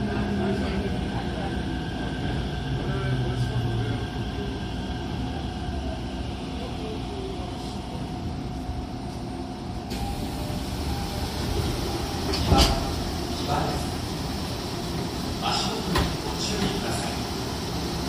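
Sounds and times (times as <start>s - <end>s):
subway train braking: 0.0s - 18.0s
train running rumble: 8.0s - 18.0s.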